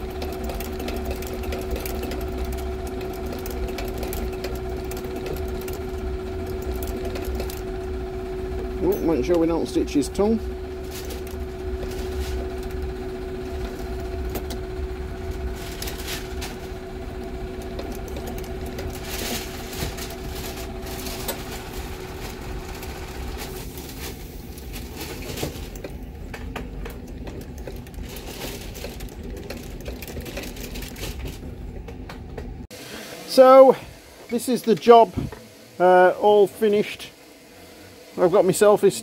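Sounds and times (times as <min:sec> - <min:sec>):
sewing machine needle clatter: 0:00.0 - 0:07.8, 0:10.9 - 0:21.6, 0:25.2 - 0:31.4
steady hum: 0:00.0 - 0:39.0.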